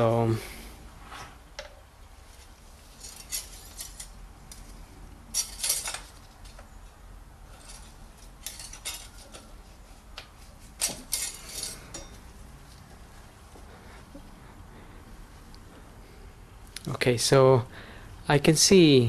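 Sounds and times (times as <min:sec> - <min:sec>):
metallic dipstick clinks and scrapes: 0:10.8 - 0:12.2.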